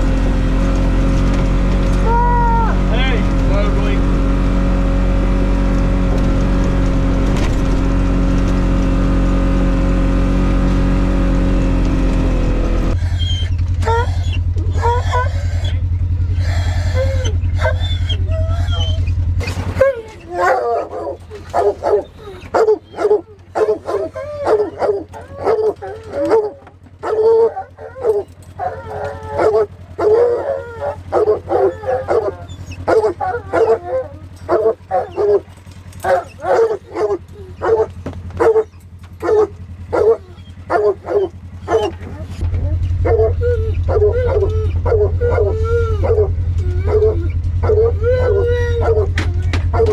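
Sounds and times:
hounds baying: 0.0s - 49.9s
utility vehicle engine running: 0.0s - 49.9s
dog whining: 1.8s - 3.2s, 12.9s - 49.9s.

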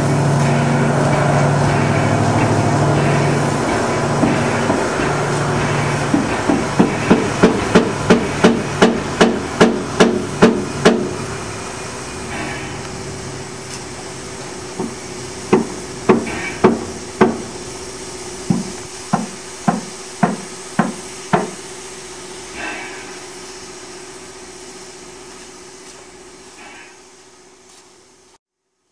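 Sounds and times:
steam hissing: 0.0s - 28.4s
hammer striking metal: 0.4s - 11.2s, 14.8s - 17.5s.

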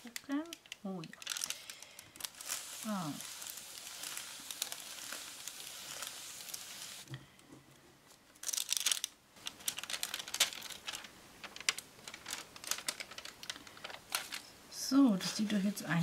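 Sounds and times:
embossing powder crackling: 0.8s - 7.1s
baking paper peeled off: 1.2s - 7.1s, 8.4s - 14.5s
paper handling clicks: 8.4s - 14.5s.

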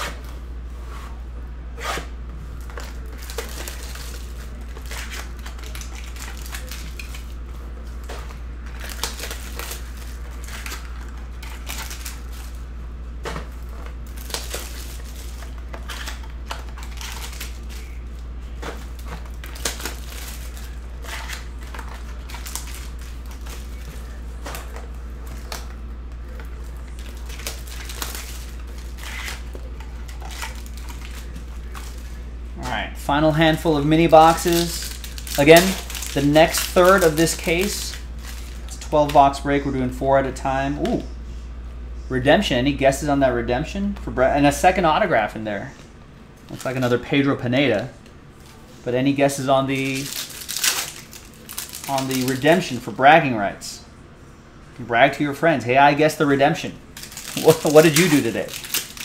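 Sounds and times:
steady low hum: 0.0s - 59.0s
plastic shrink wrap crinkling: 2.5s - 12.6s, 13.4s - 32.2s, 33.5s - 39.1s, 46.5s - 47.0s, 49.7s - 52.8s, 56.9s - 59.0s.

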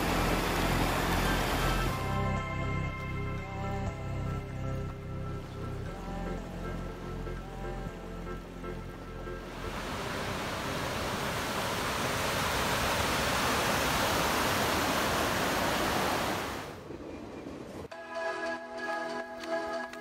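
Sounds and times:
water rushing over rocks: 0.0s - 2.0s, 9.5s - 16.8s.

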